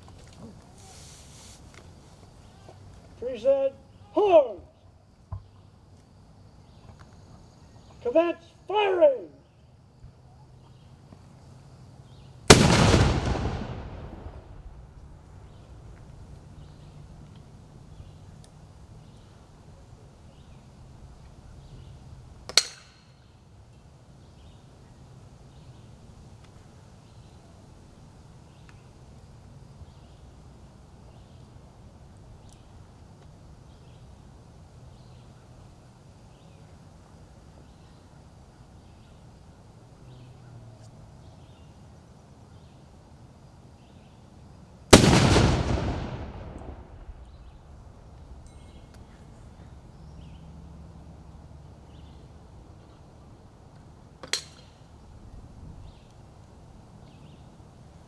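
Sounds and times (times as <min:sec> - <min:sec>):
cannon blast rumbling: 0:12.5 - 0:15.0, 0:44.9 - 0:47.5.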